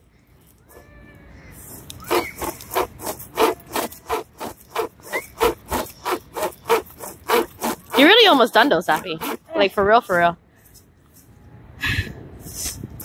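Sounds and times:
pocket chain saw rasping through branch: 0:02.0 - 0:09.5.

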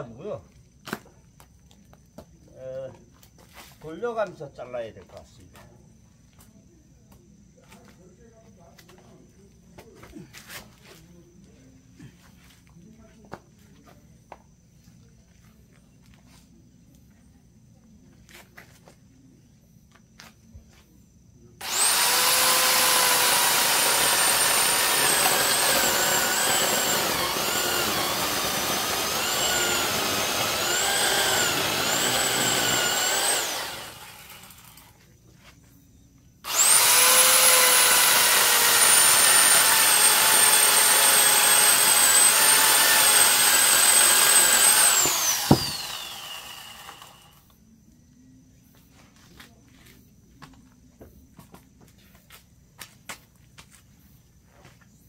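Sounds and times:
electric chainsaw cutting log: 0:21.6 - 0:34.9, 0:36.4 - 0:47.4.

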